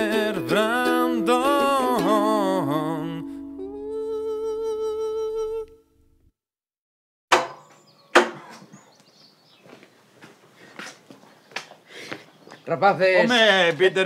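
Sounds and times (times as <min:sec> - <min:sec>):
theme song singing: 0:00.0 - 0:04.4
sharp knocks: 0:07.3 - 0:08.8.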